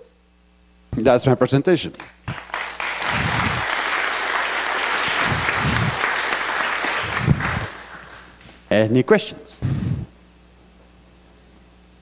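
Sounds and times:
audience applauding: 2.0 - 8.4.

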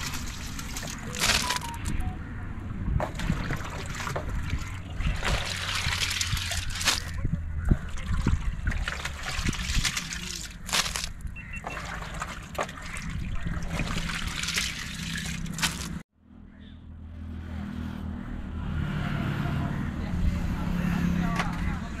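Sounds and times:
water splashing and trickling: 0.0 - 2.2, 2.9 - 16.1.

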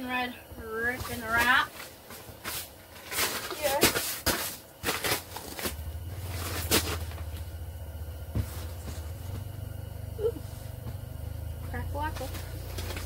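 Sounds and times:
low steady rumble: 4.8 - 13.0.

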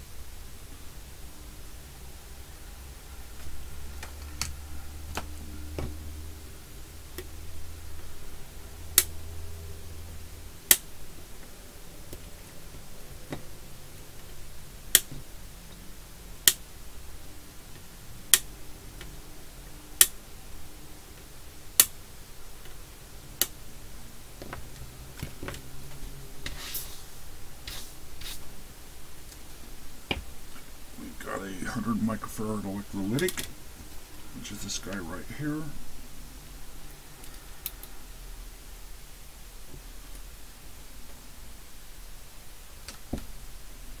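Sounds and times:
low hum: 0.0 - 42.8
sharp clicks: 14.9 - 15.2.

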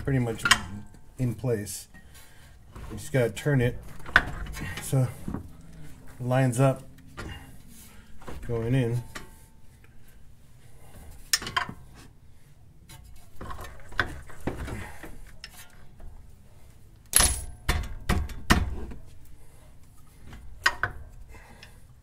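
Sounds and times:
metal clunks and scrapes: 2.0 - 9.9, 12.8 - 16.2.

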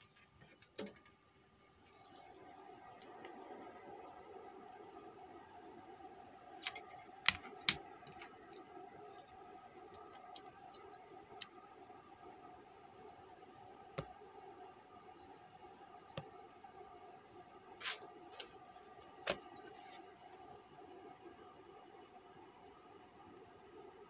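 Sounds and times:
faint steady hum: 0.0 - 24.0
light clicks and taps handling electronics: 6.6 - 12.0.

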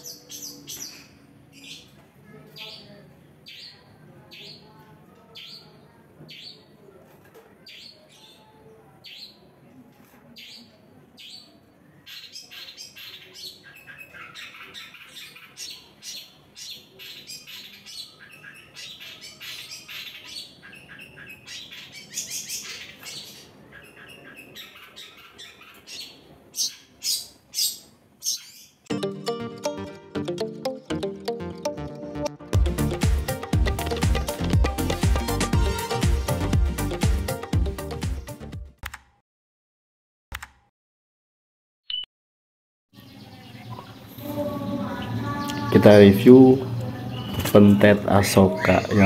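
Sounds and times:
bird calling and chattering: 10.4 - 28.9.

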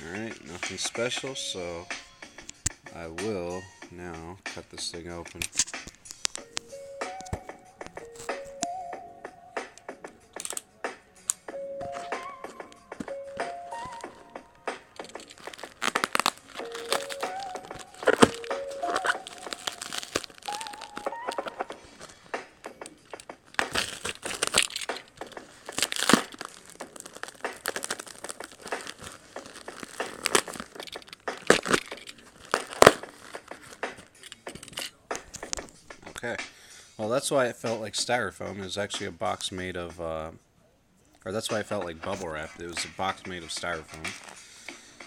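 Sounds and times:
packing tape and cardboard ripping: 14.8 - 35.6.

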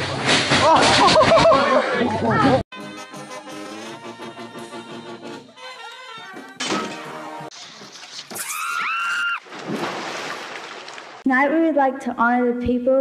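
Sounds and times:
brass band music: 2.7 - 7.5.

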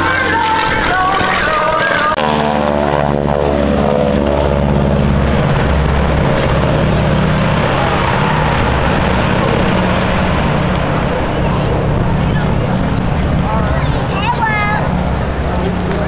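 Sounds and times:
propeller airplanes droning: 0.0 - 16.0.

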